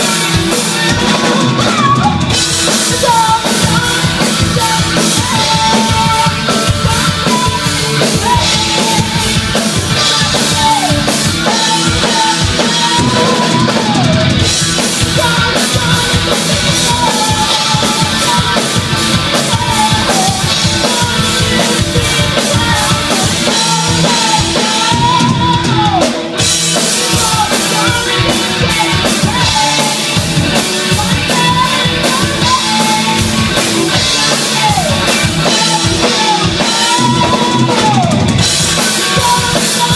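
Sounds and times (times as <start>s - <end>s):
live rock band playing: 0.0s - 39.9s
woman singing lead vocal: 0.0s - 39.9s.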